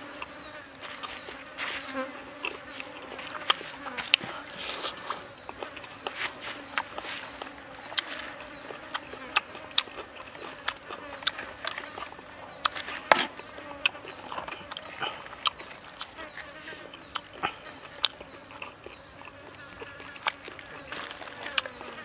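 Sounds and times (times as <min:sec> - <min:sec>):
faint high insect buzz: 0:00.0 - 0:15.4
chewing clicks and smacks: 0:02.4 - 0:22.0.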